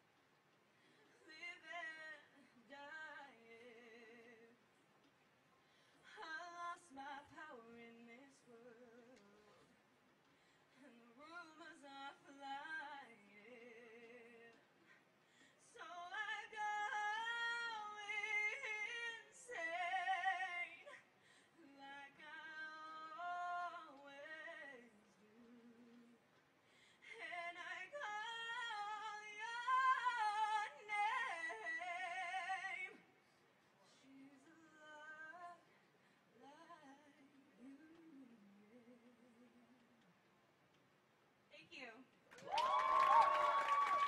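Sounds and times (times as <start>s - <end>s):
woman singing unaccompanied: 1.2s - 4.6s, 6.0s - 9.8s, 10.8s - 14.7s, 15.6s - 26.3s, 27.0s - 33.0s, 33.9s - 35.8s, 36.4s - 40.0s.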